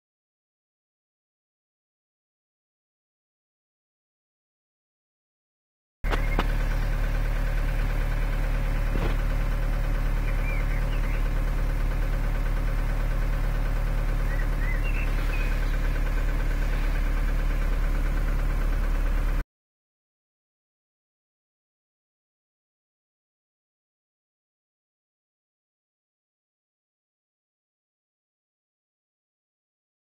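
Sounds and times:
car engine idling: 6.0s - 19.4s.

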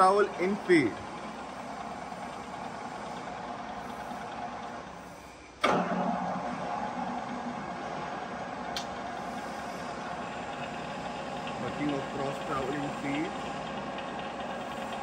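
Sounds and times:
milling machine feed hum: 0.0s - 15.0s
machine clunk: 5.6s - 6.1s.

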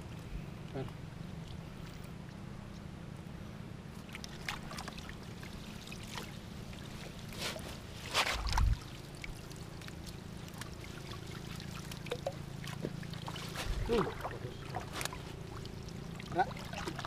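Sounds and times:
steady low hum: 0.0s - 17.0s
water splashing and dripping: 8.1s - 17.0s.

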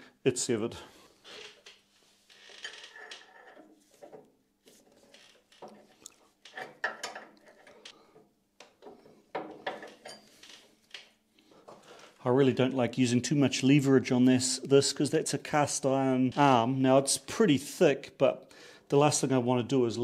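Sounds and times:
light metal clicks and knocks: 5.5s - 11.1s.

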